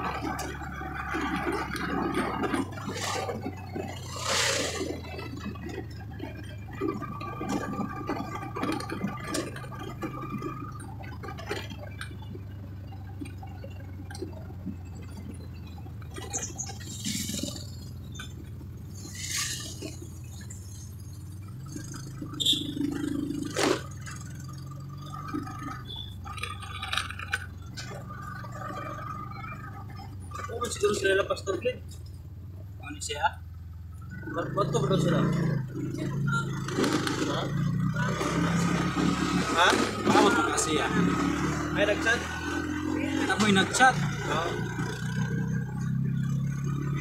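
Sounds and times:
knocks and rattles: 0:00.0 - 0:32.2
vehicle engine drone: 0:00.0 - 0:47.0.

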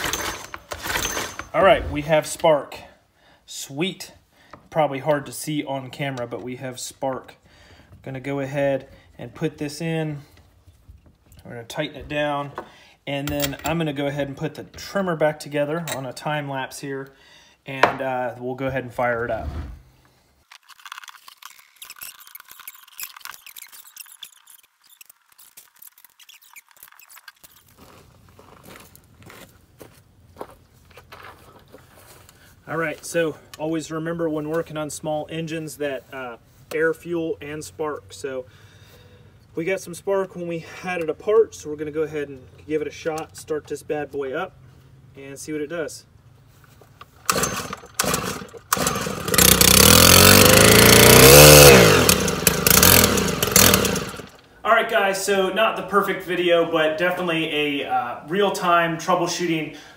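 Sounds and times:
low outdoor background: 0:00.0 - 0:59.9
high-pitched clicks and squeaks: 0:20.5 - 0:27.8
string trimmer engine running: 0:47.2 - 0:54.4.

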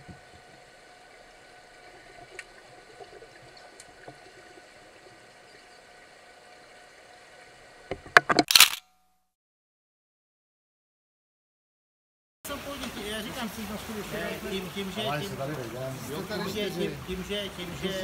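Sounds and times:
bubbling and splashing: 0:00.0 - 0:07.9
small clicks: 0:08.2 - 0:08.9.

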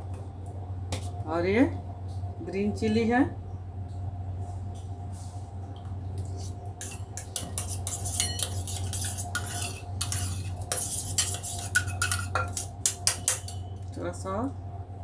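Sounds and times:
metal spoon scraping steel bowl: 0:06.8 - 0:13.8.

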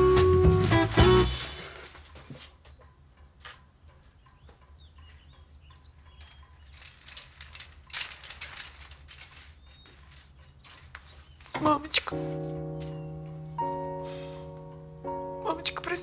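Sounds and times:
bead curtain clattering: 0:06.2 - 0:13.1.

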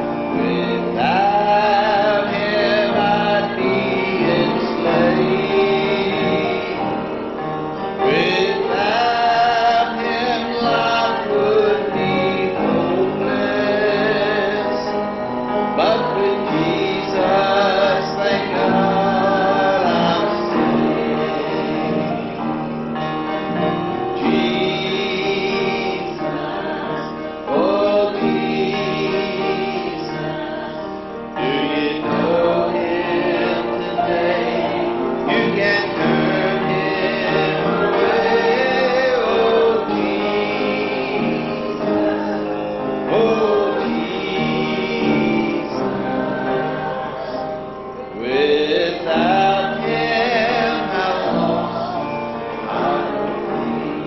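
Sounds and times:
people singing a hymn: 0:00.0 - 0:54.0.

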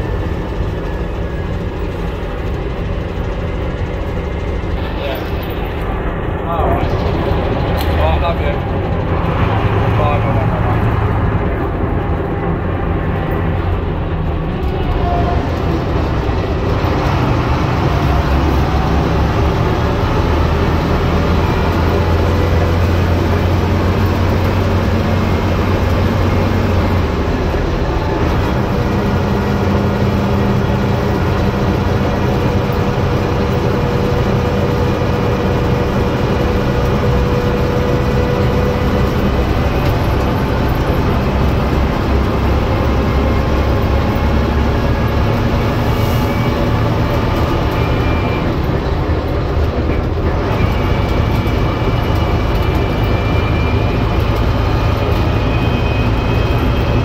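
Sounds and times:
bus diesel engine running: 0:00.0 - 0:57.0
road noise: 0:00.0 - 0:57.0.

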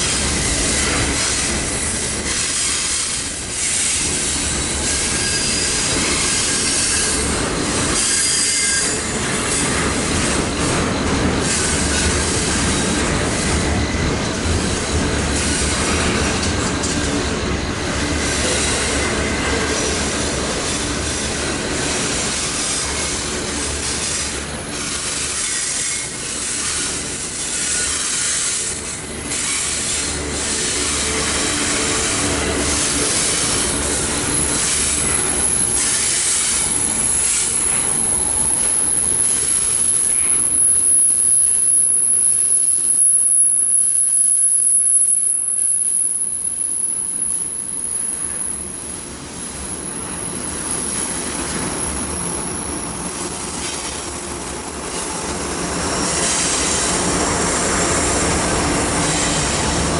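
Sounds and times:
freight cars rolling on rails: 0:00.0 - 0:59.9
high-pitched wheel squeal: 0:00.3 - 0:07.3, 0:07.9 - 0:09.7, 0:25.0 - 0:48.7.

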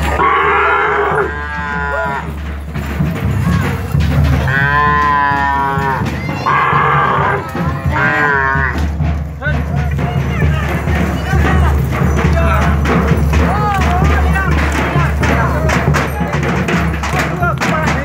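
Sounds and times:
cattle mooing: 0:00.0 - 0:02.3, 0:04.4 - 0:08.8.

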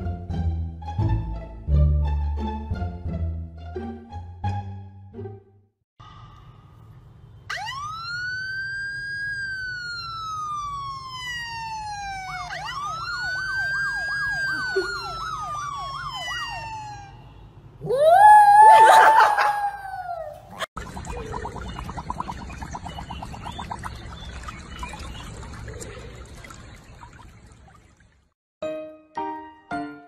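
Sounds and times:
siren wail from phone: 0:07.5 - 0:20.2
dog howling: 0:17.8 - 0:20.4.

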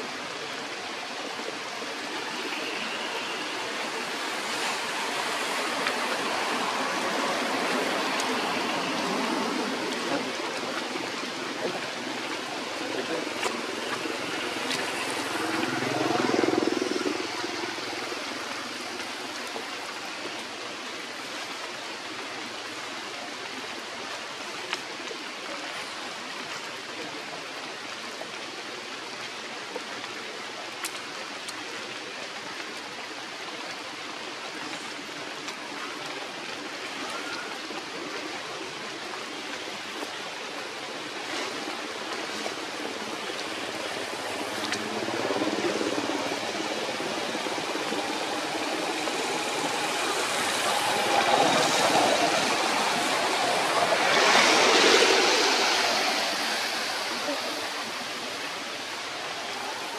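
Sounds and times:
running water rushing: 0:00.0 - 0:59.9.

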